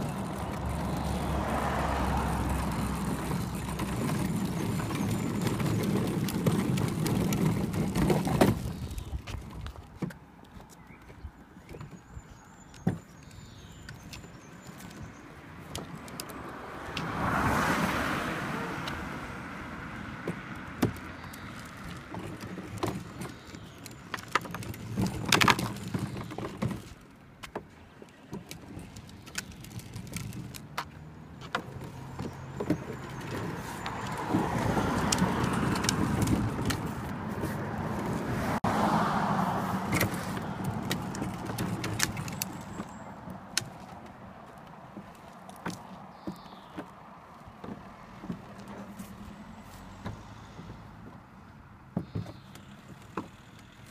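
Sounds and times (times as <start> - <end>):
plastic wheels rolling on tarmac: 0.0 - 53.9
plastic body clicking and knocking: 2.1 - 12.1, 12.7 - 17.1, 20.2 - 38.2, 39.9 - 49.1, 51.9 - 53.9.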